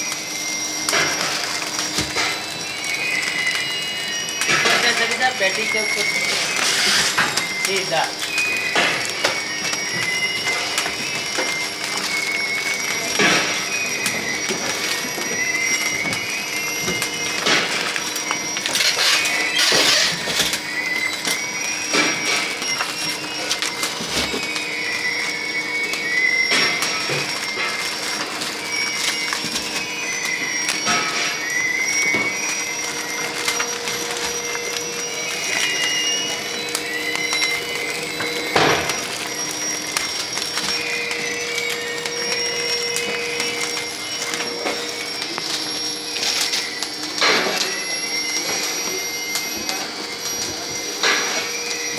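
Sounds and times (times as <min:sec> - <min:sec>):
short high squeaks: 0:18.7 - 0:20.2.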